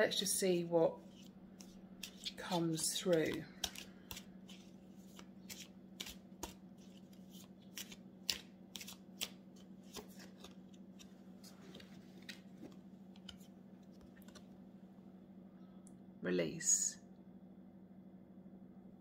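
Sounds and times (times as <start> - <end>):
faint steady hum: 0.0 - 19.0
cards shuffled by hand: 1.0 - 14.5.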